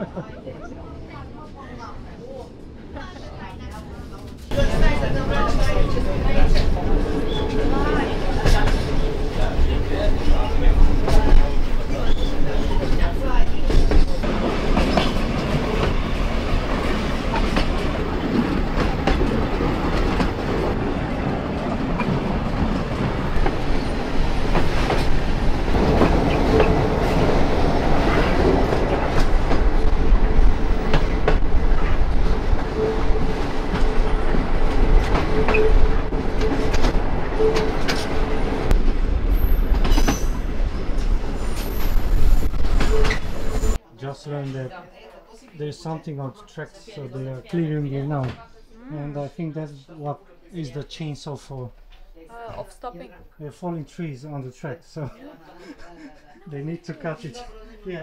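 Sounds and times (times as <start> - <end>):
train rumble on track: 0.3 - 43.8.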